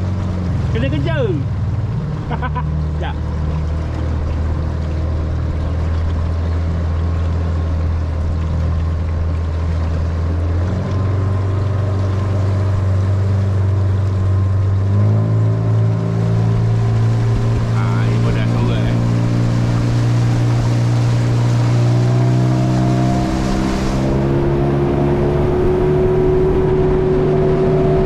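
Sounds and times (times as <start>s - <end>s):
boat motor droning: 0.0s - 28.0s.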